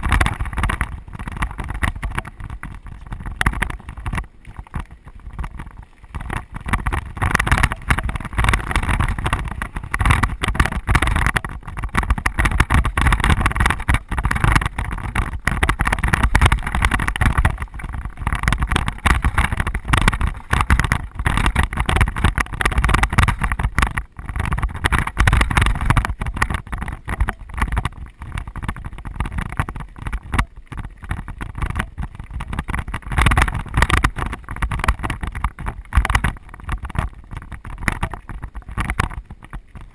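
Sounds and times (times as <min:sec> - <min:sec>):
bike rattling on bumps: 0:00.0 - 0:39.9
tyres rolling over rocky dirt: 0:00.0 - 0:39.9
wind buffeting microphone: 0:00.0 - 0:39.9.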